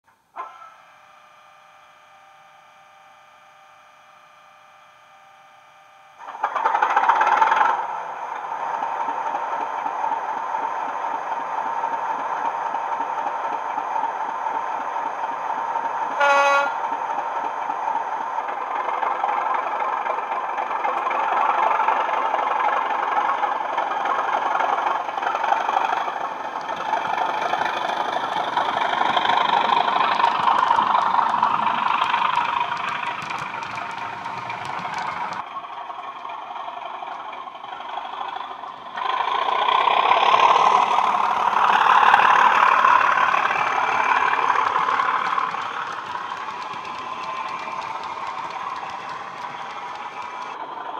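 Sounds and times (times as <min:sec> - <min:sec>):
diesel locomotive engine: 0:00.1 - 0:50.9
locomotive horn toot: 0:16.2 - 0:16.8.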